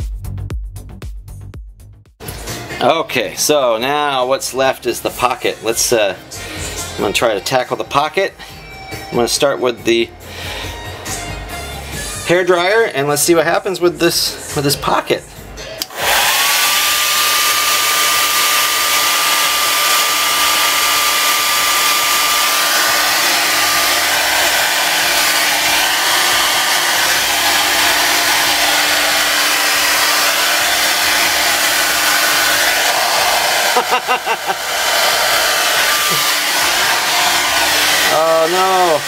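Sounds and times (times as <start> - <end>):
hair dryer running: 2.2 - 8.1, 15.8 - 39.0.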